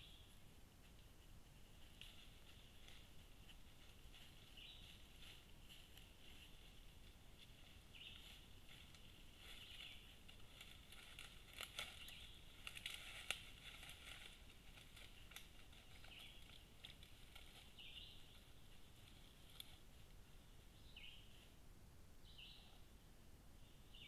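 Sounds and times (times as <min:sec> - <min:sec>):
faint rustling in grass: 0:00.0 - 0:23.0
brush snapping: 0:10.4 - 0:15.6.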